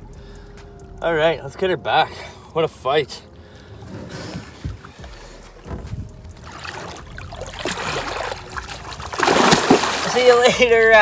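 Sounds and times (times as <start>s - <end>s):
water sloshing and splashing: 3.6s - 11.0s
low thumps: 3.7s - 9.9s.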